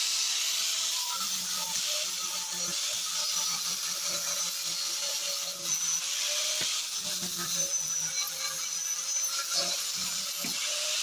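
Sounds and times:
angle grinder grinding steel: 0:00.0 - 0:11.0.

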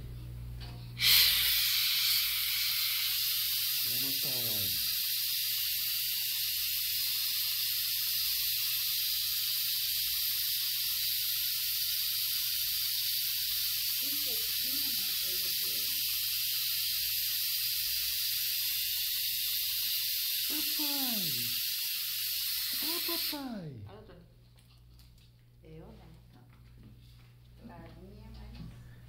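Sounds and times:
steady hiss: 0:01.0 - 0:23.6.

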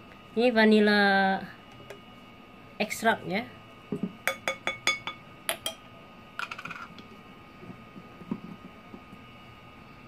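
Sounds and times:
metal spoon clinking: 0:04.3 - 0:05.8.

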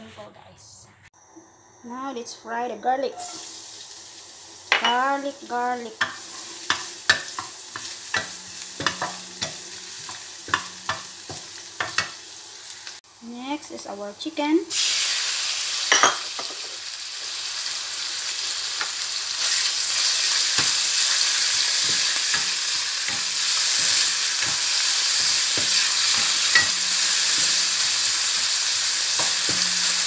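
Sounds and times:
chicken sizzling in oil: 0:03.2 - 0:13.3, 0:14.7 - 0:30.0
spatula scraping and knocking pan: 0:06.0 - 0:12.2, 0:19.9 - 0:30.0.

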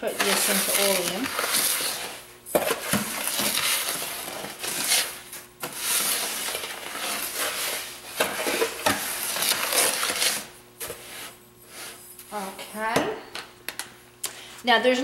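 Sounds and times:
spoon scraping salt granules: 0:00.0 - 0:12.0.

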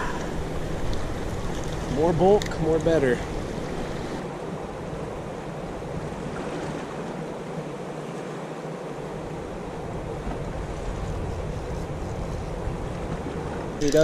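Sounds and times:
river water rushing: 0:00.0 - 0:10.9.

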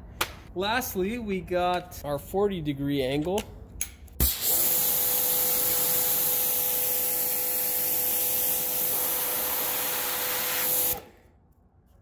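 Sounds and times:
pressure washer spraying water: 0:04.2 - 0:11.0.

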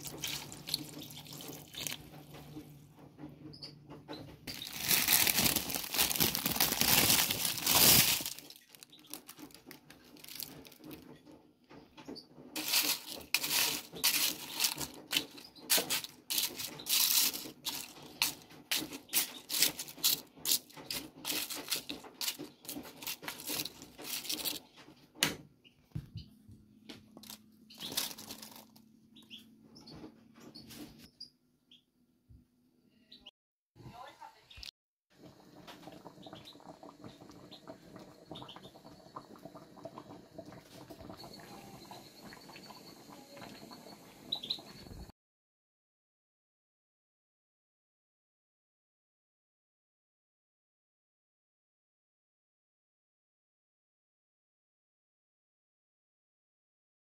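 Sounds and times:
water pouring into metal pot: 0:00.0 - 0:02.0
greens crackling and rustling: 0:04.5 - 0:11.0, 0:12.6 - 0:24.6, 0:27.2 - 0:28.8.

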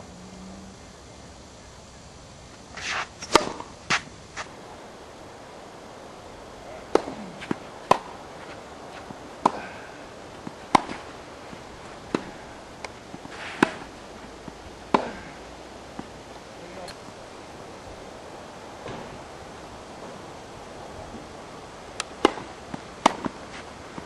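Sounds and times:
tennis ball struck by racket: 0:02.8 - 0:04.5, 0:06.8 - 0:11.1, 0:12.0 - 0:13.9, 0:14.9 - 0:16.1, 0:22.0 - 0:24.0
tennis ball bouncing: 0:02.8 - 0:04.6, 0:06.8 - 0:17.2, 0:22.0 - 0:24.0.

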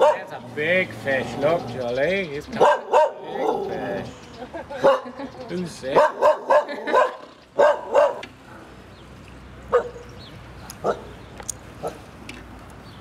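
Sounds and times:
dog barking: 0:00.0 - 0:00.4, 0:02.6 - 0:03.8, 0:04.8 - 0:05.2, 0:05.9 - 0:08.3, 0:09.7 - 0:10.1, 0:10.8 - 0:11.2, 0:11.8 - 0:12.0.

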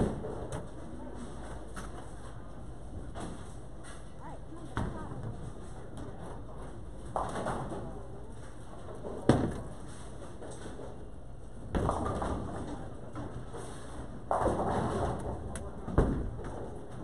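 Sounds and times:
bowling alley background din: 0:00.0 - 0:17.0
bowling pins clattering: 0:11.6 - 0:17.0.

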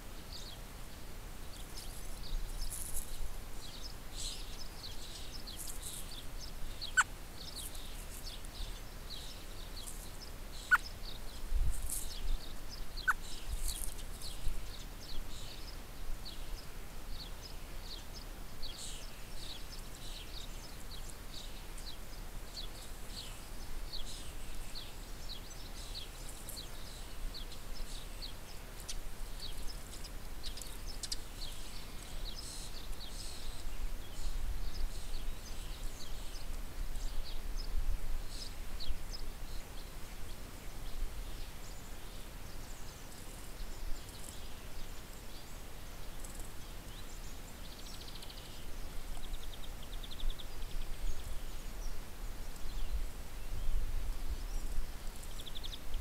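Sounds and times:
small songbirds chirping: 0:00.0 - 0:56.0
bird trill: 0:06.8 - 0:07.9.

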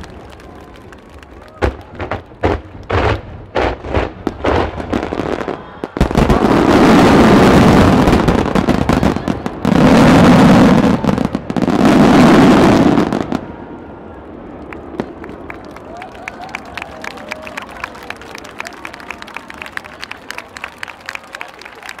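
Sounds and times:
fireworks bursting: 0:00.0 - 0:15.6.

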